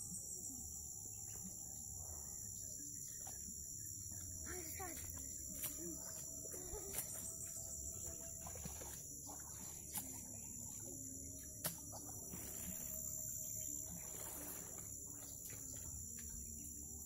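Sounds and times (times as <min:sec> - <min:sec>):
high-pitched insect drone: 0:00.0 - 0:17.0.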